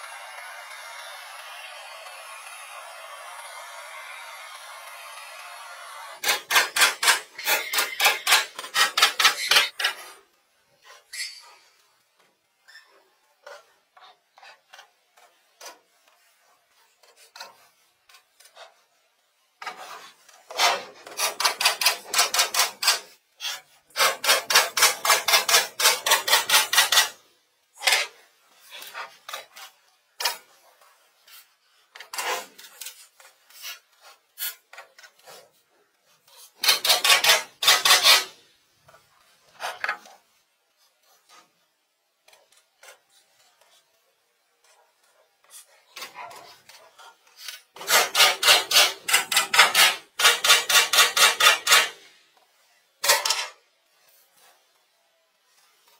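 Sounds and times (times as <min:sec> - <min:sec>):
hand scraping wood: 0:27.8 - 0:38.4, 0:44.6 - 0:52.0.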